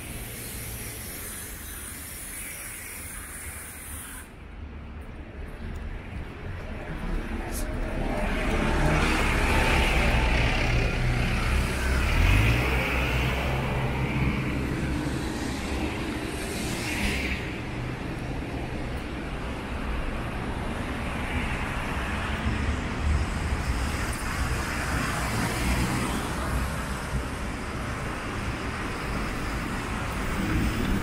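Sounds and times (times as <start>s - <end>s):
tyre hiss on wet road: 0.0s - 4.4s, 23.7s - 31.0s
engines rumbling: 0.0s - 31.0s.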